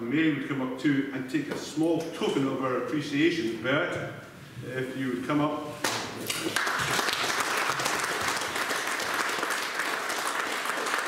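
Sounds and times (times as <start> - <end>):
audience applauding: 6.2 - 11.0.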